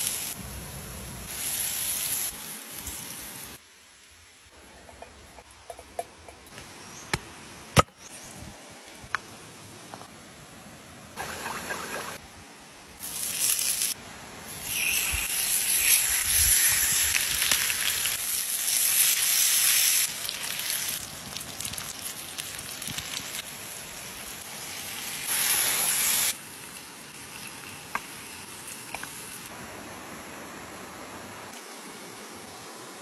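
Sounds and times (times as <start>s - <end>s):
fish sizzling on hot stone: 1.1s - 3.6s, 13.0s - 29.5s.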